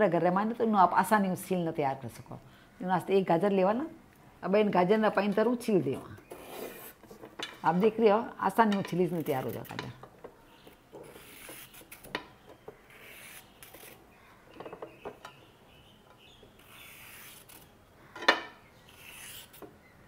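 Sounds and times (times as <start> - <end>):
peeler scraping carrot: 6.2 - 7.0, 11.0 - 12.1, 12.8 - 14.0, 16.6 - 17.7, 18.9 - 19.6.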